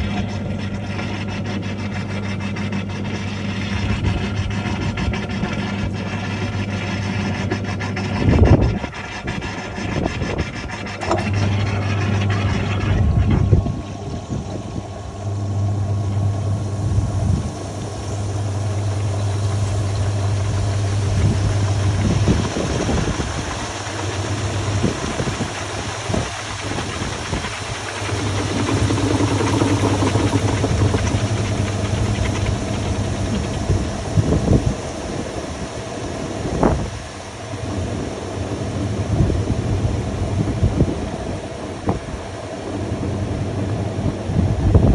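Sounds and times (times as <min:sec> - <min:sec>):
washing machine motor hum: 0:00.0 - 0:44.9
washing machine basket rushing: 0:02.4 - 0:44.9.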